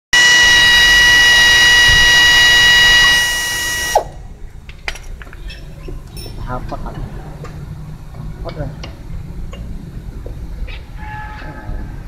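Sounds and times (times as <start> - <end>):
brake motor whining: 0.2 - 4.1.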